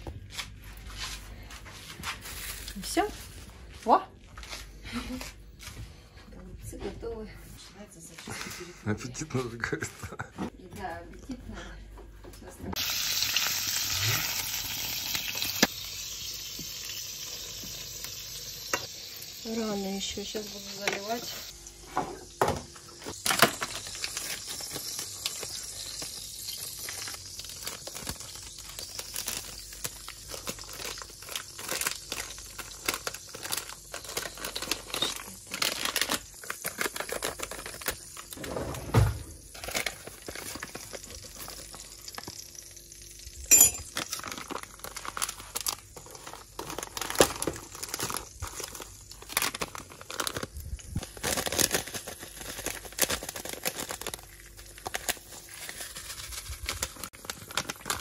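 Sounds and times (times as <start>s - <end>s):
rustling and handling noise: 0.0s - 8.6s, 23.0s - 42.5s, 43.5s - 58.0s
loud thump: 38.4s - 39.4s.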